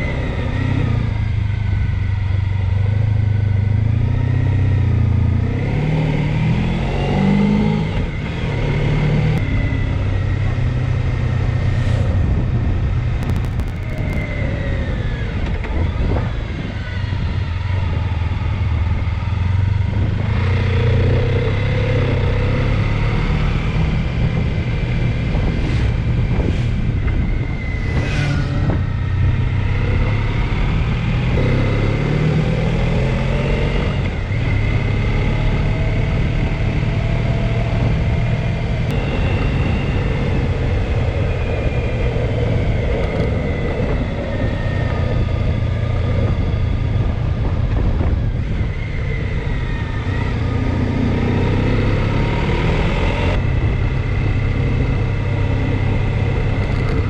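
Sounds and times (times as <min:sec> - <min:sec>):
motorcycle engine running: 0:09.4 - 0:32.0
short whoosh: 0:11.6 - 0:12.6, 0:25.4 - 0:29.0.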